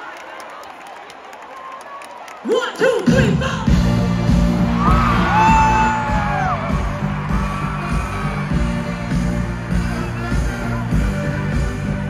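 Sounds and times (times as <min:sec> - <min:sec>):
live pop music over sound system: 0:02.5 - 0:12.0.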